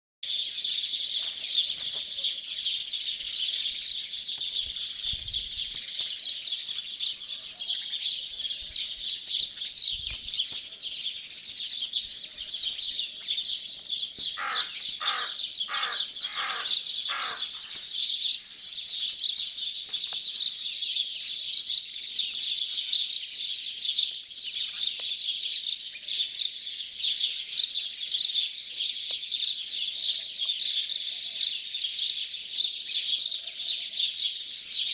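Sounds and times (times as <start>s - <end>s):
small birds chirping: 0.2s - 34.9s
lower-pitched bird calling: 14.3s - 17.9s.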